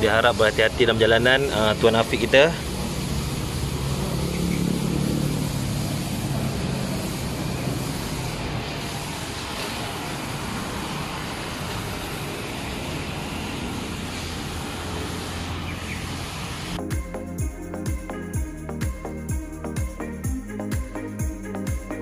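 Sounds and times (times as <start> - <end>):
traffic noise: 0.0 - 16.8.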